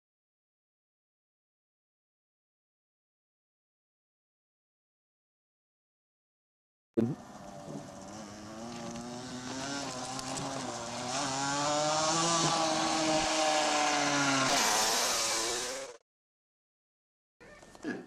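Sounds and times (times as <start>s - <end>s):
small motorcycle engine running: 7.2s - 16.0s.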